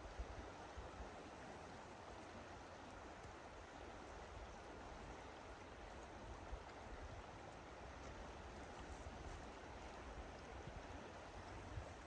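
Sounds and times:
faint rush of river water: 0.0s - 12.0s.

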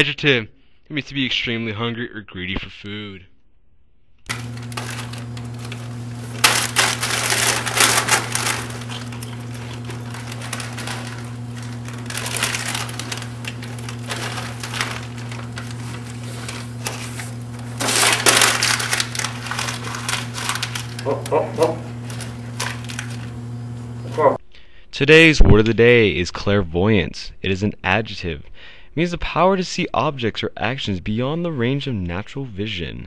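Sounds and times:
snack wrapper crinkling: 4.3s - 24.4s
steady low hum: 4.3s - 25.0s.

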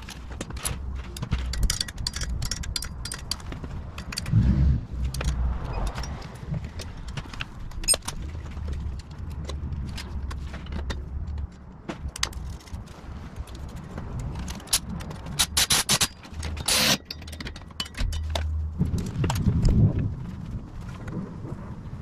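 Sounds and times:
metal clinks and scrapes of wrench: 0.0s - 4.4s, 5.0s - 7.1s, 7.7s - 11.0s, 13.4s - 19.2s.

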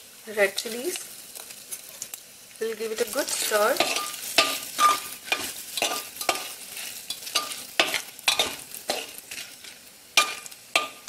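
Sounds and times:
oil sizzling: 0.0s - 11.0s
spoon scraping metal pot: 3.8s - 11.0s.

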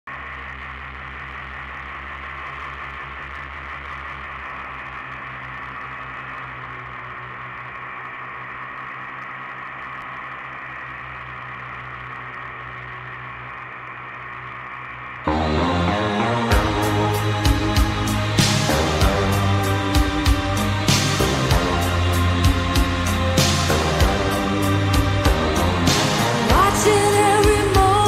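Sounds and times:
steady motor drone: 0.0s - 28.0s.

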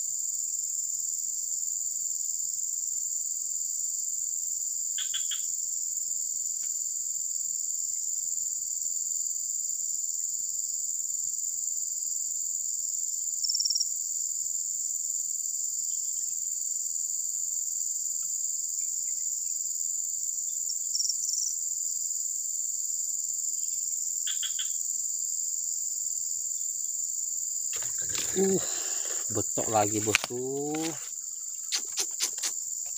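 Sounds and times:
insects chirring: 0.0s - 32.9s
faint short rustles: 27.8s - 32.9s.

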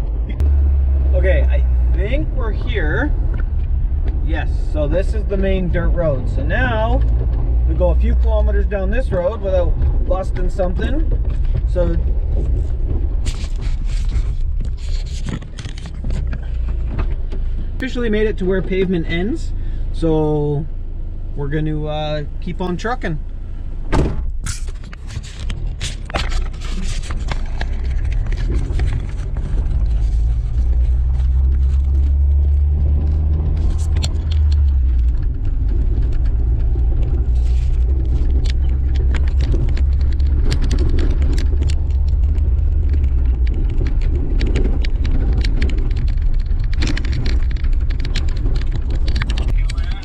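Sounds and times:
engine and tyre rumble: 0.0s - 50.0s
sharp clicks and knocks: 4.9s - 17.5s, 23.9s - 50.0s.

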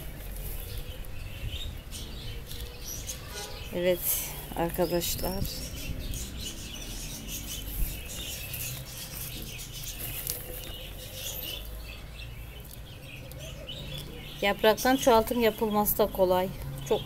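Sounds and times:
plastic bag rustling: 7.4s - 11.6s.

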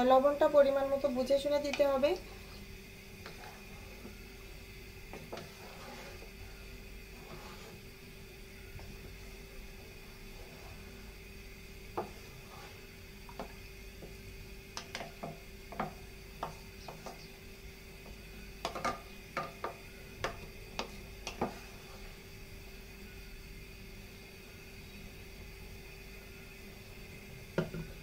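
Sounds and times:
spatula scraping metal pot: 3.2s - 4.2s, 5.1s - 7.9s, 12.0s - 13.5s.

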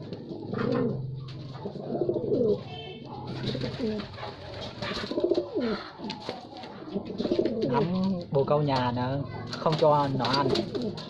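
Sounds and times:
pigeons cooing: 0.0s - 8.3s, 9.3s - 11.0s
pigeon pecking grain from metal tin: 1.5s - 8.3s.

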